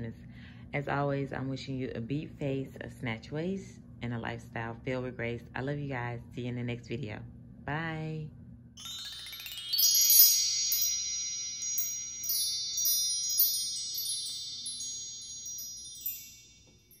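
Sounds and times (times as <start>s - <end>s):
magical chime shimmer: 8.8s - 17.0s.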